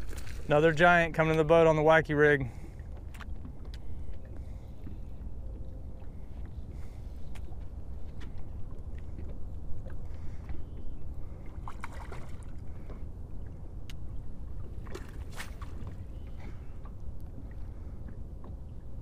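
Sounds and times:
water splashing: 0.0s - 4.6s, 11.2s - 13.6s, 14.5s - 18.8s
steady low rumble: 0.0s - 19.0s
knocks and clicks on boat: 2.6s - 19.0s.

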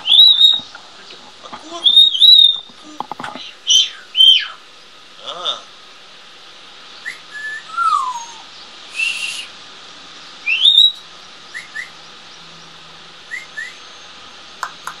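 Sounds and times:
parrot chirps: 0.0s - 0.8s, 1.7s - 2.7s, 3.6s - 4.6s, 7.0s - 9.5s, 10.4s - 12.0s
parrot whistling and calling: 0.0s - 0.8s, 1.8s - 2.7s, 3.6s - 4.6s, 7.0s - 9.6s, 10.4s - 12.0s, 13.3s - 14.3s
sharp clicks: 14.6s - 15.0s.

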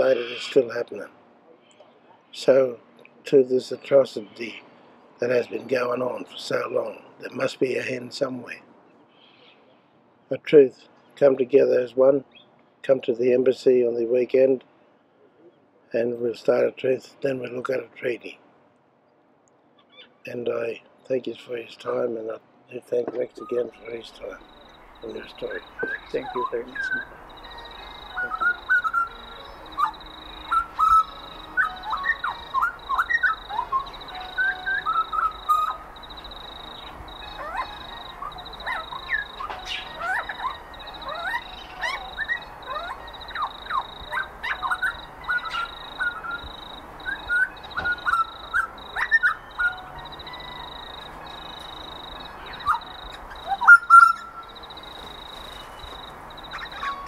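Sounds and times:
birds chirping and whistling: 0.0s - 0.8s, 23.0s - 57.0s.

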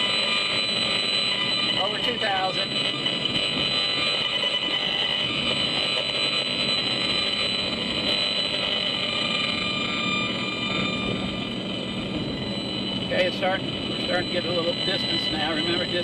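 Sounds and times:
high electronic buzz: 0.0s - 16.0s
car road noise: 9.1s - 16.0s.

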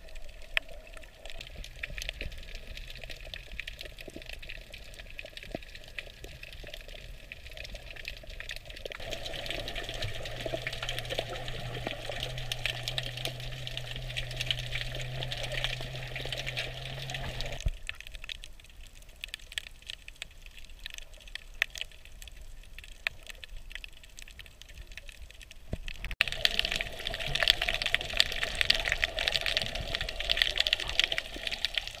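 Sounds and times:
bubbles rushing: 9.0s - 17.6s, 26.2s - 32.0s
low steady hum: 9.0s - 17.8s.

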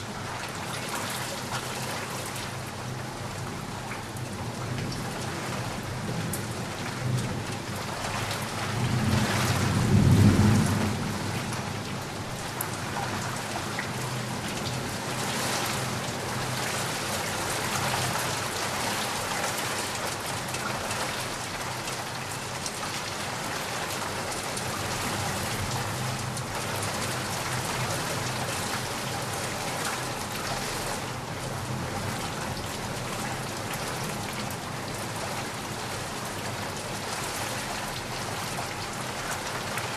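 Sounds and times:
heavy rain falling: 0.0s - 39.9s
low roll of thunder: 8.5s - 12.4s.

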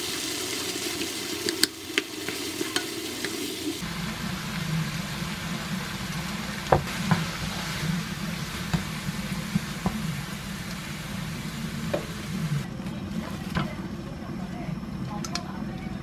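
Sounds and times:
food sizzling in frying pan: 0.0s - 12.6s.

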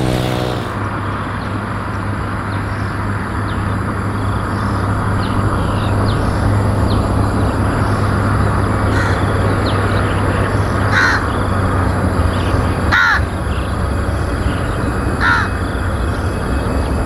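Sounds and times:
crow cawing: 8.9s - 9.3s, 10.9s - 11.4s, 12.9s - 13.3s, 15.2s - 15.6s.

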